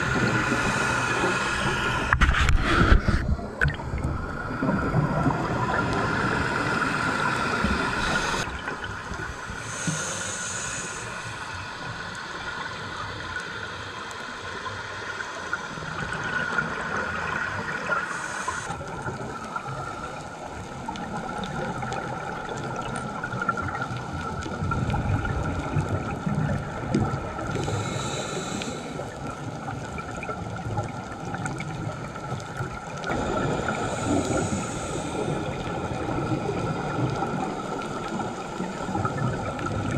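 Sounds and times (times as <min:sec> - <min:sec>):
steady hiss: 0:00.0 - 0:03.2, 0:04.0 - 0:08.6, 0:09.2 - 0:21.0, 0:27.3 - 0:29.7, 0:33.1 - 0:39.9
scuba regulator breathing: 0:00.0 - 0:03.4, 0:04.5 - 0:08.5, 0:09.4 - 0:12.1, 0:18.0 - 0:18.8, 0:27.5 - 0:29.3, 0:33.1 - 0:36.7
exhaled bubbles: 0:00.0 - 0:09.8, 0:15.8 - 0:39.9.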